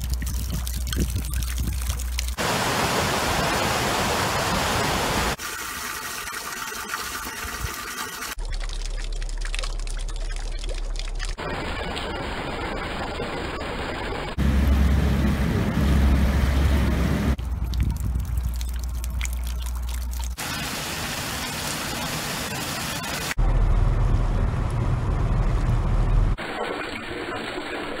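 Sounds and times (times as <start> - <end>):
meltwater running over ice: 0.0 - 14.1, 17.5 - 23.4
choppy water: 0.0 - 23.4
heavy rain falling: 2.4 - 5.4, 20.4 - 23.4
deep rumble: 14.4 - 20.4, 23.4 - 26.4.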